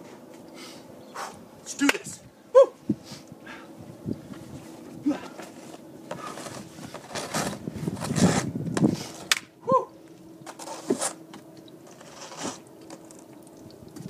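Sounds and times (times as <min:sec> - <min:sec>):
crunching footsteps: 0:04.3 - 0:09.5.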